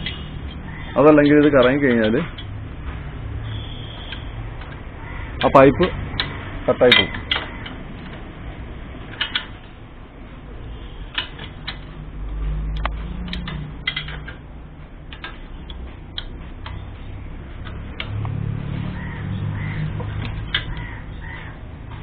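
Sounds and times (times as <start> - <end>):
spanner clinking against nut: 12.7 - 14.4.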